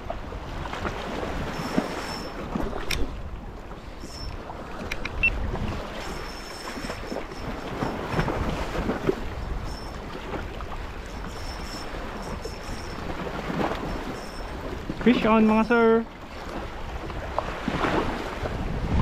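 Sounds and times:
water washing at shore: 0:00.0 - 0:19.0
faint clicks: 0:04.0 - 0:05.3
wind blowing on microphone: 0:16.3 - 0:19.0.

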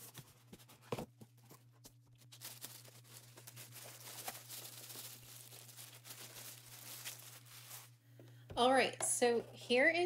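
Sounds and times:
plastic bag crinkling: 0:02.1 - 0:08.0.

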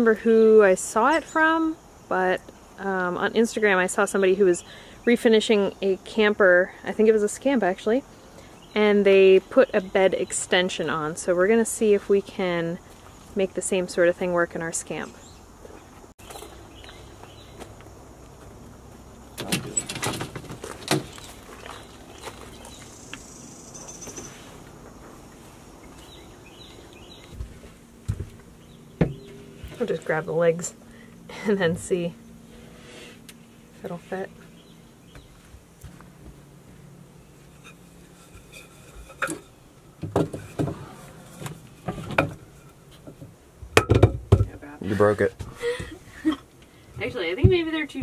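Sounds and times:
birds chirping faintly: 0:00.0 - 0:42.0
low steady hum: 0:00.0 - 0:48.0
plywood sheet knocking and rattling: 0:40.0 - 0:40.9, 0:43.8 - 0:44.6.

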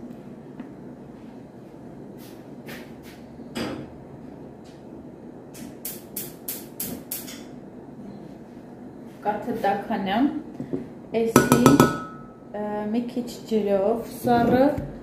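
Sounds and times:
kitchenware clicking and knocking: 0:11.4 - 0:12.2.

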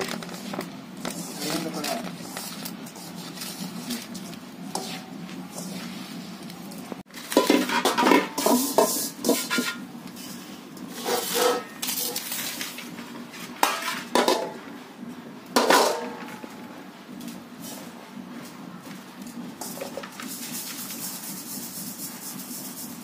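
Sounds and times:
metal dishes clattering and scraping: 0:07.1 - 0:14.6, 0:15.6 - 0:16.5.

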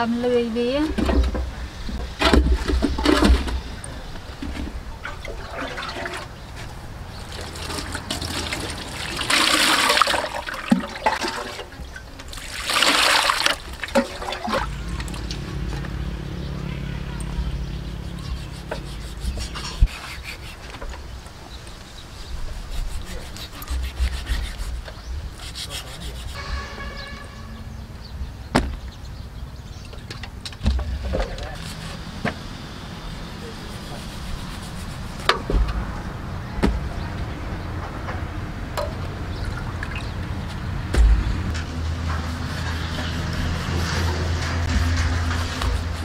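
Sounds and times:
knife scraping skin: 0:18.2 - 0:20.7, 0:22.5 - 0:26.6
sharp thump: 0:40.9 - 0:41.6.

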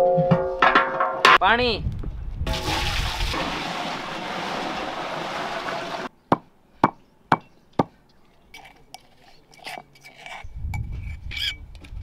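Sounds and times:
water pouring into metal pot: 0:02.5 - 0:06.1.

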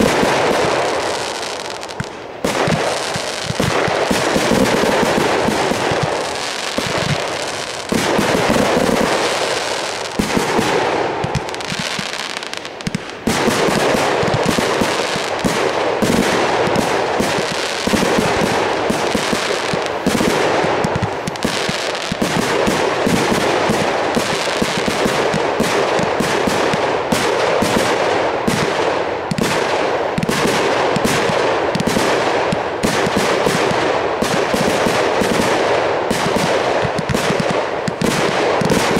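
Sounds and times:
fireworks bangs and crackle: 0:00.0 - 0:38.9.

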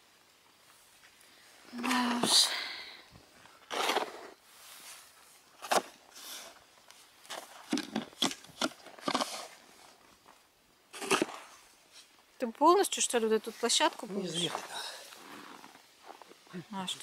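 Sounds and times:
shovel scraping snow: 0:03.6 - 0:06.6, 0:07.3 - 0:09.6, 0:10.9 - 0:12.1, 0:13.4 - 0:16.2.

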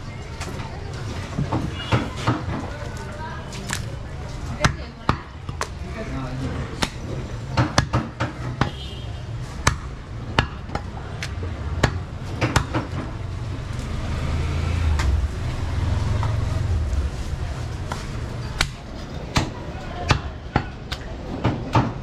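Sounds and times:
cleaver chopping meat on wood: 0:06.8 - 0:08.8, 0:09.6 - 0:13.0.

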